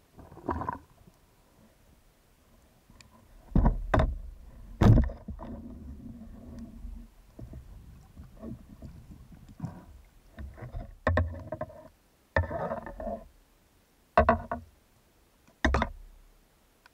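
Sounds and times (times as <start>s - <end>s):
underwater knocks: 3.5s - 5.6s, 14.2s - 14.7s, 15.6s - 16.1s.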